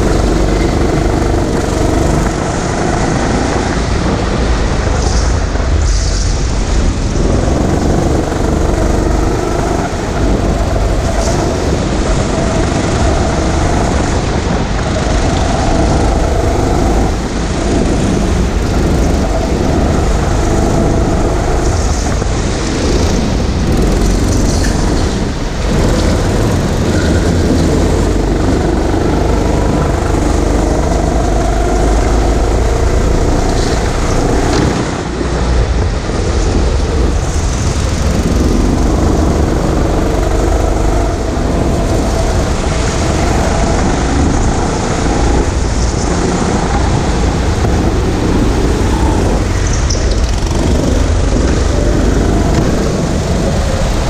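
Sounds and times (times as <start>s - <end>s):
deep rumble: 0.0s - 54.0s
go-kart engine running: 0.0s - 54.0s.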